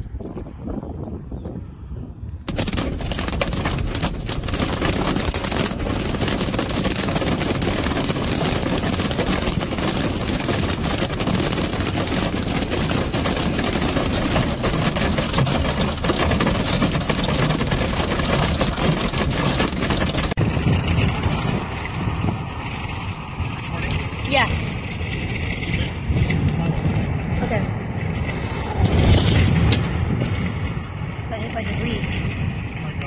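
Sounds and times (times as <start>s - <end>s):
faint wind noise: 0.0s - 33.0s
heavy rain on car roof: 2.5s - 20.4s.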